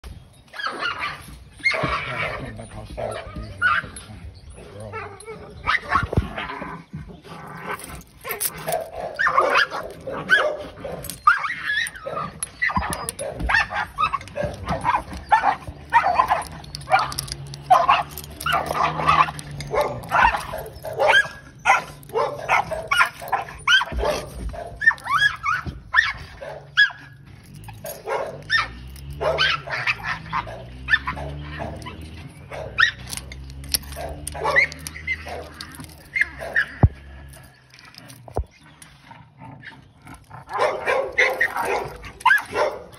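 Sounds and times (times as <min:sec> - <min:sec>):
dogs barking: 0:00.5 - 0:42.9.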